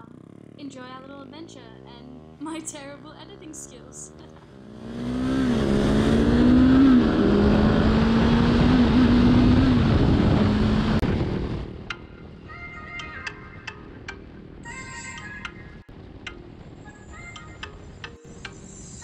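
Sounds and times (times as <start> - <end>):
motorcycle engine running: 0.0 - 12.4
wind rush: 5.3 - 13.0.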